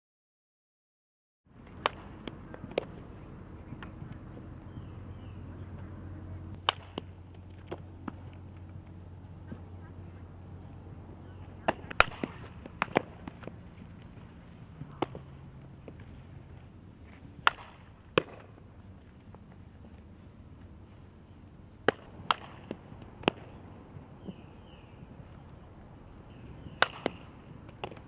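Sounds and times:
sharp ball cracks: 0:01.6 - 0:03.0, 0:06.5 - 0:09.0, 0:11.6 - 0:14.3, 0:14.9 - 0:16.1, 0:17.1 - 0:18.6, 0:21.8 - 0:24.4, 0:26.6 - 0:28.0.

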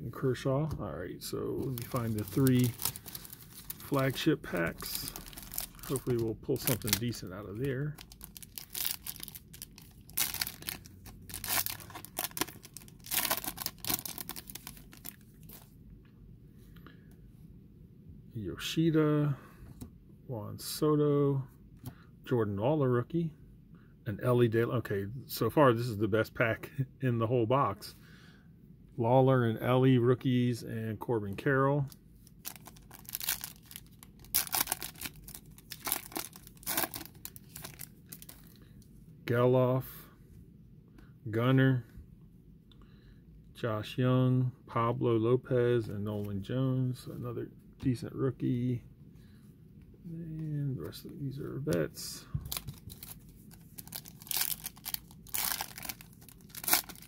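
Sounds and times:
foil wrapper tearing and crinkling: 0:01.7 - 0:15.2, 0:32.4 - 0:38.4, 0:52.5 - 0:57.0.

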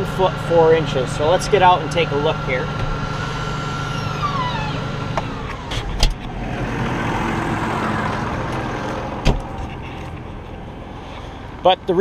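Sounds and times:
tractor engine running: 0:00.0 - 0:12.0
cab door opening clunk: 0:04.2 - 0:06.4, 0:08.1 - 0:10.0.

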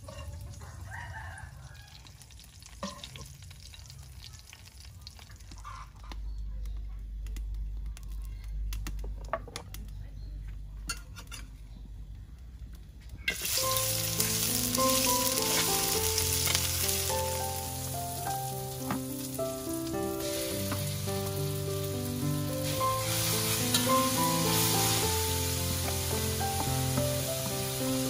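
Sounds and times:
spatula scraping a wok: 0:00.0 - 0:00.6
meat sizzling in hot oil: 0:01.7 - 0:05.5, 0:13.3 - 0:28.0
instrumental background music: 0:13.4 - 0:28.0.

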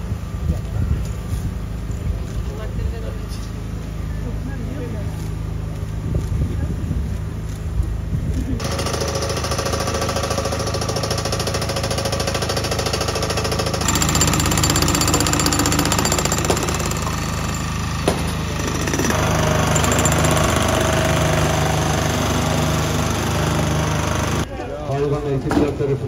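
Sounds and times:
power unit engine running: 0:07.2 - 0:24.5
jackhammer on concrete: 0:08.6 - 0:24.5.

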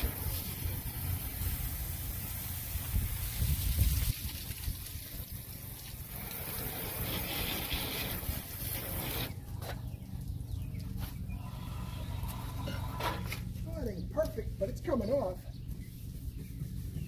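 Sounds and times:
hose spray hitting a boat hull: 0:00.0 - 0:09.3
wind rumble on microphone: 0:02.6 - 0:09.2.

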